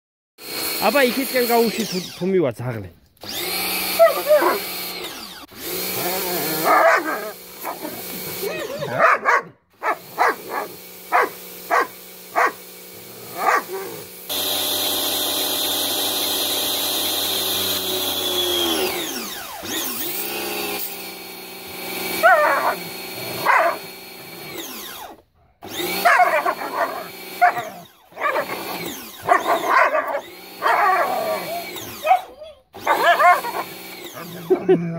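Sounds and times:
pressure washer humming: 0.4s - 2.4s, 3.2s - 34.8s
dog yelping: 3.8s - 4.7s, 6.4s - 12.6s, 13.2s - 14.1s, 22.2s - 23.9s, 25.8s - 34.8s
dog barking: 4.0s - 4.6s, 6.6s - 8.0s, 8.6s - 12.6s, 13.3s - 14.0s, 22.2s - 23.9s, 25.9s - 28.6s, 29.2s - 34.4s.

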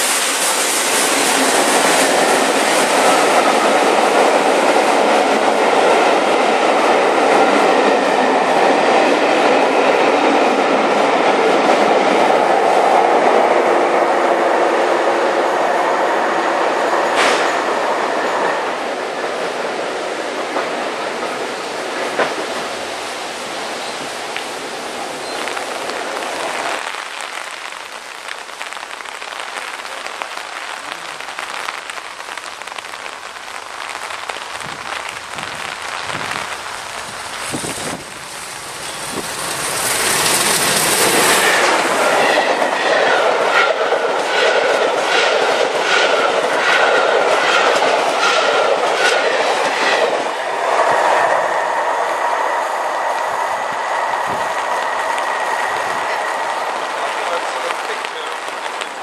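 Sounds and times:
steam locomotive hiss: 0.0s - 5.4s, 37.4s - 58.4s.

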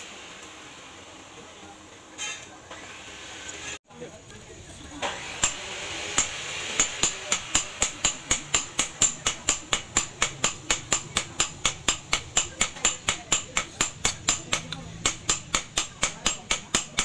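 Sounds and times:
hammer striking metal on anvil: 5.4s - 17.0s.

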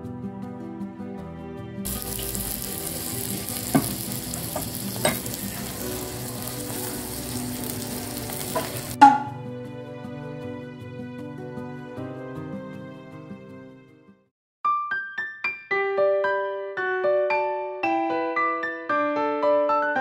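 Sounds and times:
steak sizzling on iron plate: 1.9s - 9.0s.

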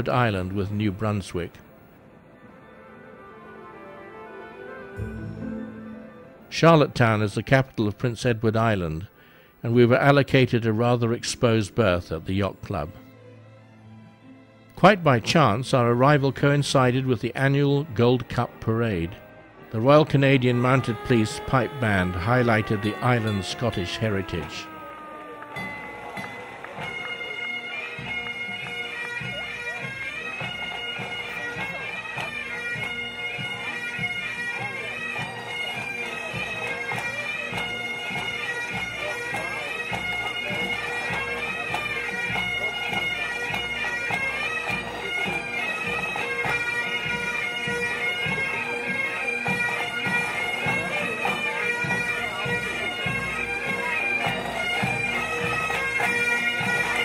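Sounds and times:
bagpipes playing a tune: 16.0s - 57.0s
drums beating: 19.8s - 28.3s.

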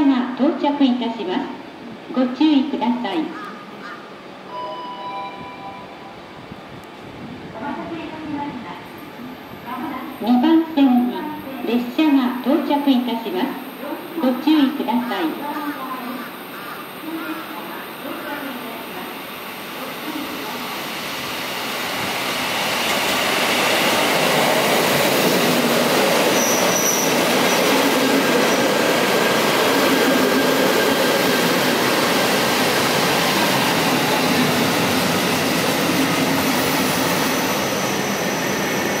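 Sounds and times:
electric train running noise: 12.4s - 39.0s
high train squeal: 26.2s - 28.7s, 33.1s - 39.0s.

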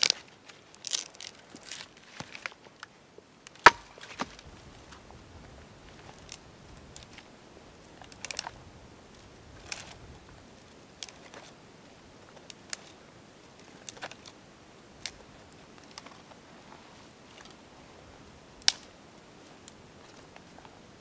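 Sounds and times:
twigs snapping: 0.0s - 4.5s, 8.0s - 8.6s, 11.0s - 11.5s, 13.6s - 14.4s, 18.6s - 19.0s.

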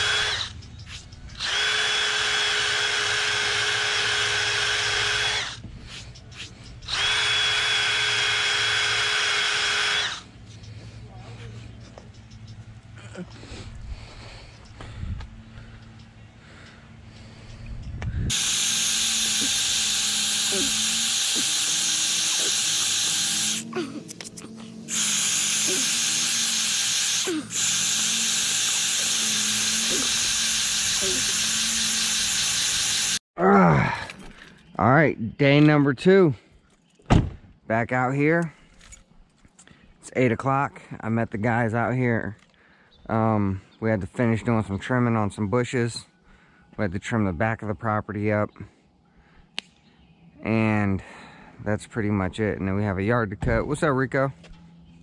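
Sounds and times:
drill motor whine: 0.0s - 0.7s, 1.3s - 5.7s, 6.8s - 10.3s, 18.3s - 33.2s
wire brush grinding concrete: 18.3s - 33.2s.

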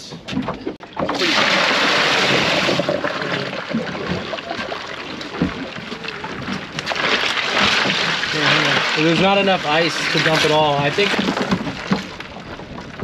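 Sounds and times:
ice pouring into a cooler: 1.1s - 3.7s
ice shifting: 1.1s - 4.7s, 6.9s - 12.2s.

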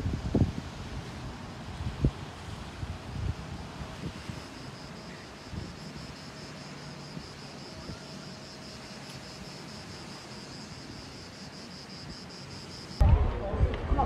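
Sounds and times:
steady hiss: 0.0s - 13.0s
insects chirping: 1.8s - 13.0s.

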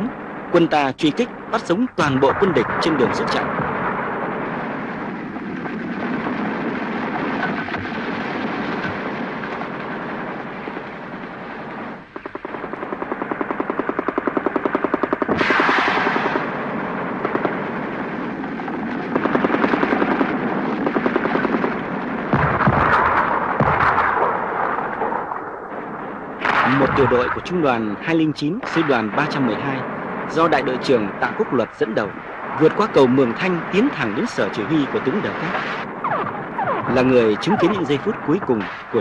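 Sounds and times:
explosions: 0.0s - 39.0s
rumble of combat: 0.0s - 39.0s
machine-gun fire: 3.7s - 25.3s, 26.4s - 27.3s.

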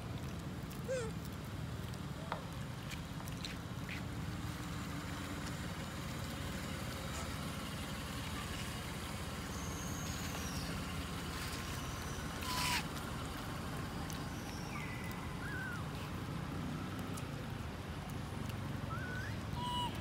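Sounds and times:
baby monkey squealing: 12.1s - 12.9s, 18.9s - 20.0s.

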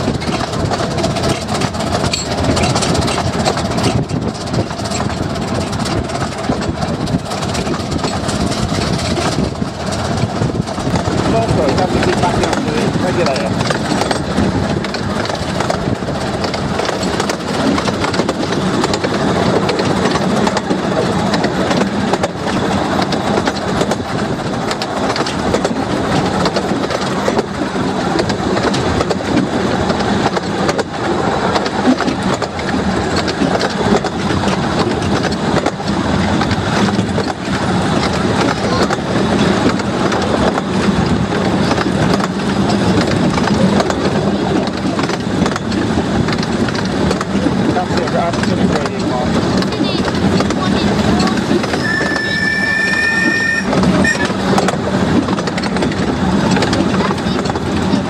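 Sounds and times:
train wheels clattering on rails: 0.0s - 58.0s.

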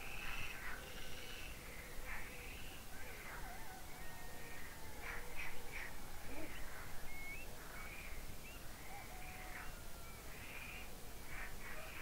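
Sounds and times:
birds whistling and chirping: 5.4s - 9.8s.

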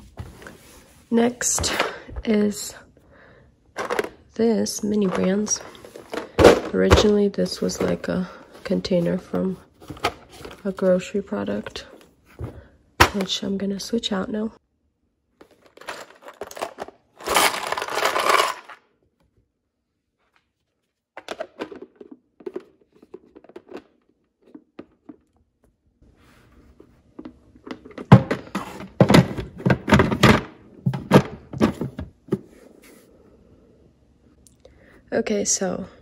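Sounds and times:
plastic bins knocking and thudding: 3.8s - 4.2s, 4.9s - 10.8s, 11.7s - 13.4s, 27.2s - 32.6s
plastic toys clattering into bin: 3.8s - 4.2s, 5.0s - 8.0s, 15.4s - 18.8s.

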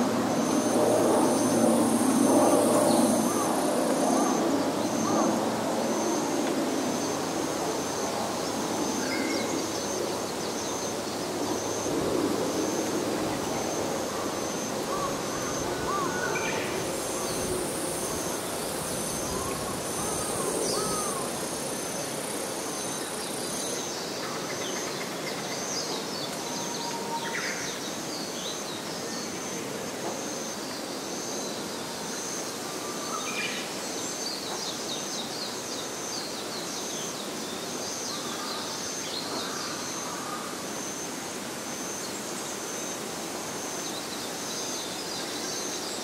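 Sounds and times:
higher insect buzz: 0.0s - 24.8s
high insect tone: 0.0s - 46.0s.

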